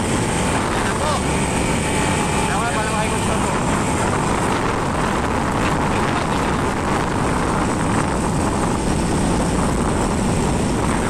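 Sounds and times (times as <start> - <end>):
vehicle and road noise: 0.0 - 11.0
wind buffeting microphone: 0.0 - 11.0.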